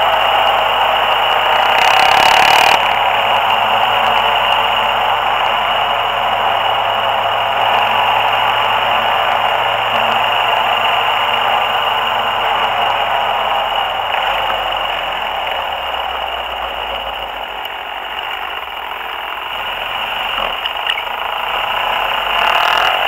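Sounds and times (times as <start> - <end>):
faint quad bike engine: 0.0 - 23.0.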